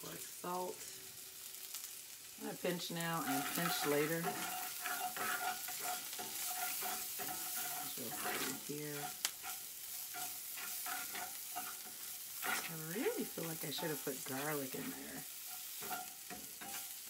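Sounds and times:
vegetables sizzling in oil: 0:00.0 - 0:17.0
spatula scraping a pan: 0:02.6 - 0:17.0.

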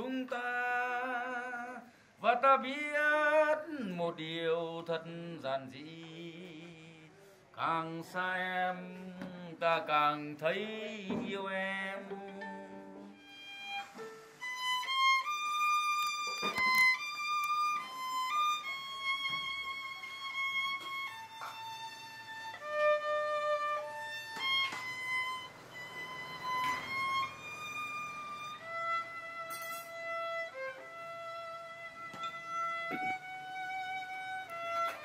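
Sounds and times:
bowed violin melody: 0:11.8 - 0:35.0.

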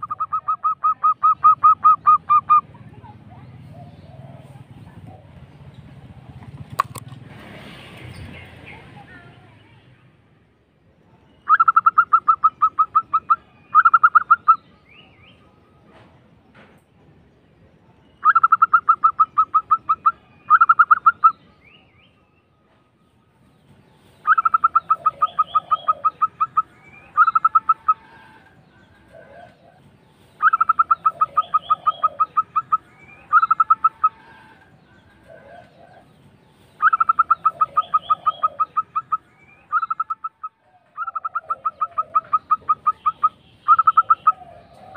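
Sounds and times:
dove cooing trills: 0:00.0 - 0:05.6, 0:11.4 - 0:15.1, 0:18.2 - 0:21.7, 0:24.2 - 0:44.9
faint low bird calls: 0:24.2 - 0:44.9.

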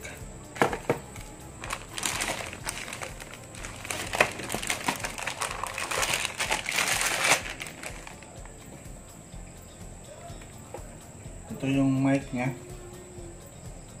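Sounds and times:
plastic bag crinkling: 0:01.6 - 0:08.4.

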